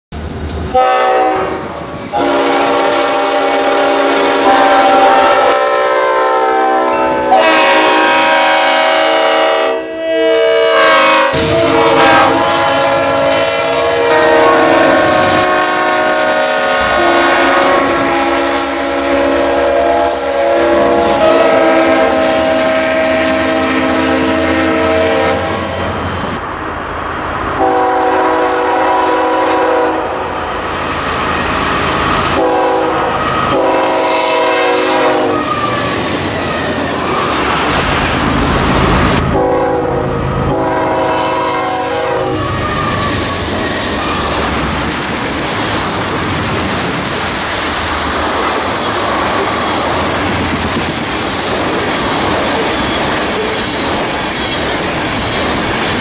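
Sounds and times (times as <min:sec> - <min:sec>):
train rumble and wheels: 0:00.1 - 0:56.0
locomotive air horns: 0:00.7 - 0:26.4, 0:27.6 - 0:30.3, 0:32.2 - 0:36.0, 0:38.6 - 0:44.6.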